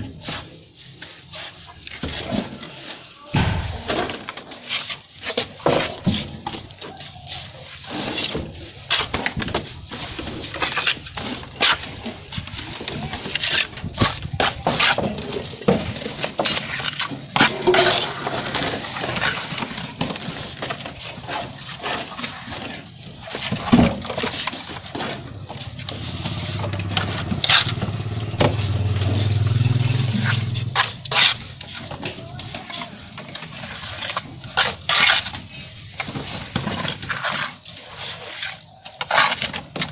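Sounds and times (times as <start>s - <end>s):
trowel slapping wet mortar: 25.9s - 39.9s.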